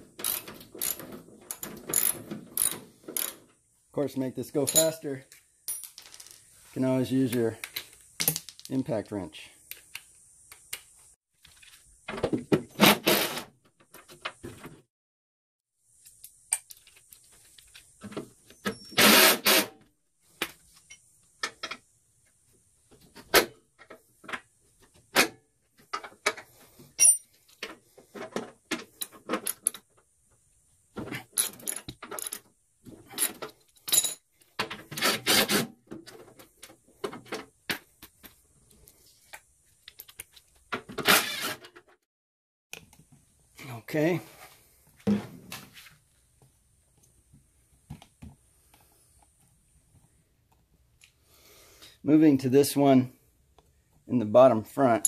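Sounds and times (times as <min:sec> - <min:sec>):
hand tools clinking on metal: 0:04.5 - 0:06.3
impact wrench bursts: 0:18.9 - 0:19.7.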